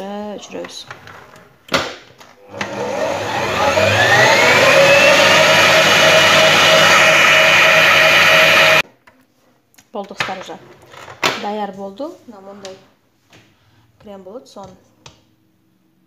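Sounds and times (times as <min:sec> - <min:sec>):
stand mixer motor whisking: 0:02.4 - 0:08.8.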